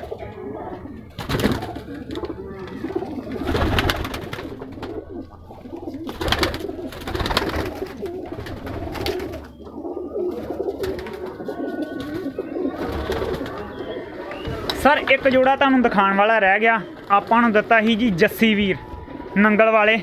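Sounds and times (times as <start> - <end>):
pigeons cooing: 0.0 - 20.0
wing flaps: 1.2 - 9.5.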